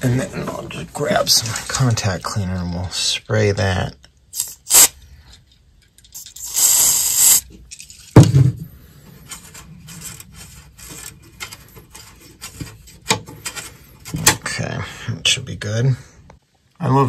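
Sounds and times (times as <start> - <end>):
aerosol can spraying: 4.4 - 4.9, 6.2 - 7.4.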